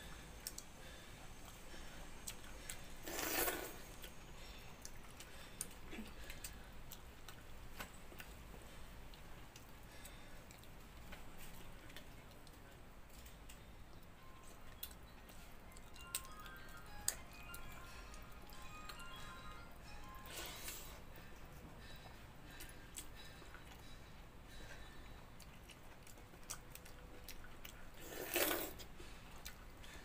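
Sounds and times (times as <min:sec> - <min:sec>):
chewing clicks and smacks: 0:25.3 - 0:27.9.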